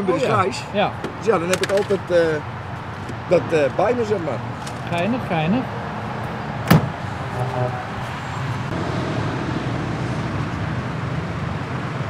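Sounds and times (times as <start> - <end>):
vehicle noise with low hum: 0.0 - 12.0
metal locker flap slammed shut: 6.7 - 7.0.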